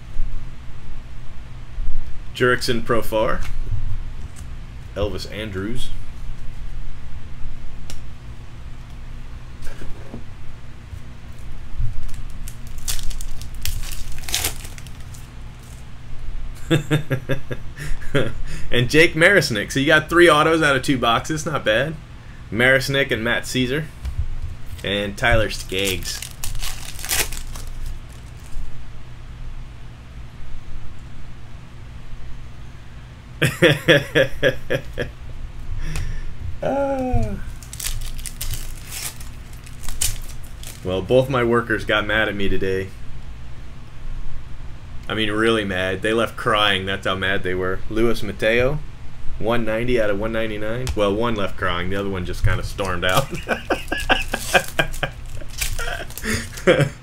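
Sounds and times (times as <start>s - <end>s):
man talking: 5.0s - 6.0s, 24.8s - 26.3s, 36.6s - 37.5s, 49.4s - 55.1s
cards being flipped through: 11.3s - 15.8s, 24.7s - 28.6s, 37.5s - 40.9s, 52.8s - 56.7s
foil pack crinkling and tearing: 11.9s - 15.8s, 24.7s - 28.7s, 37.5s - 40.9s, 53.0s - 56.9s
man chuckling: 16.6s - 18.7s, 33.4s - 35.2s, 35.8s - 37.5s, 53.1s - 57.0s
man saying ohh: 36.6s - 37.5s.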